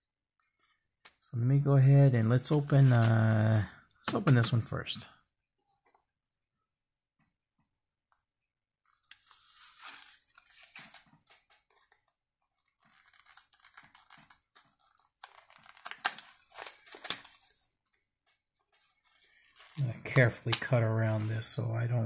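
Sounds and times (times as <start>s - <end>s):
plastic packaging crinkling: 12.6s - 17.6s.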